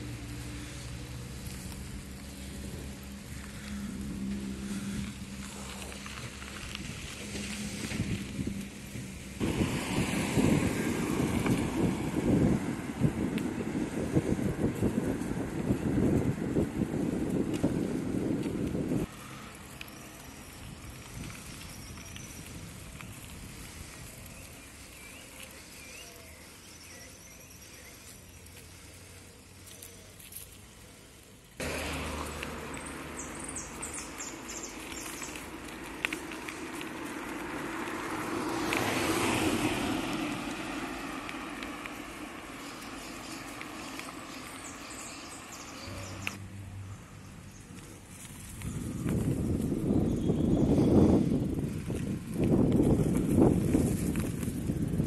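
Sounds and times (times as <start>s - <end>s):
wind buffeting microphone: 0.0s - 19.2s, 20.6s - 25.8s, 47.7s - 55.0s
vehicle hum with road noise: 0.0s - 55.0s
small birds chirping: 19.0s - 31.6s, 32.4s - 46.4s, 47.0s - 52.0s.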